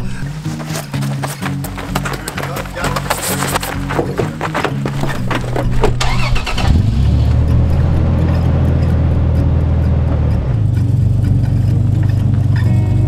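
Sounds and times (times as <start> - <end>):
knocking and clatter: 2.8 - 6.0
engine starting and droning: 4.8 - 13.0.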